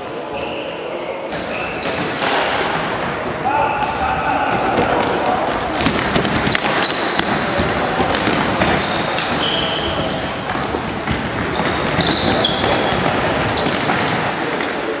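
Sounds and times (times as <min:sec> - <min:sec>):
players' voices: 0:00.0 - 0:15.0
echoing hall din: 0:01.3 - 0:15.0
shoes squeaking on wooden floor: 0:04.7 - 0:07.8, 0:08.6 - 0:14.6.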